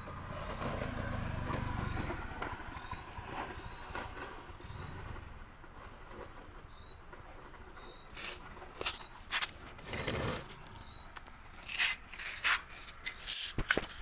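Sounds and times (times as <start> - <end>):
tools being handled: 11.5 - 14.0.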